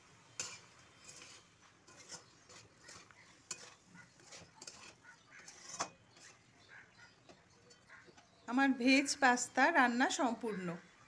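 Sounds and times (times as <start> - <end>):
spatula scraping a pan: 0.0 - 8.3.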